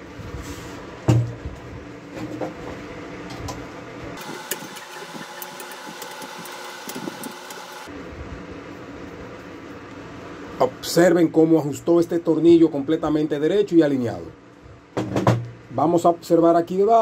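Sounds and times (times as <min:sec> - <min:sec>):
socket wrench clicking: 0:04.2 - 0:07.7.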